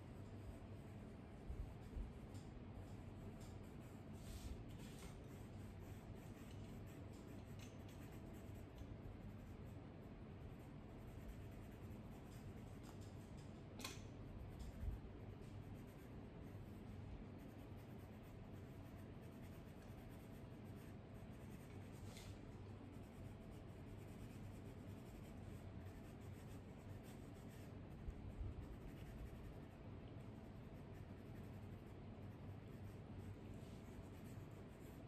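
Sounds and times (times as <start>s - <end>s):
pencil scratching on paper: 0.0s - 35.0s.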